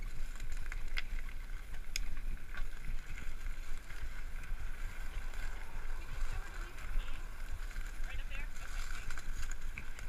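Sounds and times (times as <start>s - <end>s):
sharp clicks from bike: 0.0s - 5.7s
tyres crunching on gravel: 0.0s - 10.0s
wind rumble on microphone: 0.0s - 10.0s.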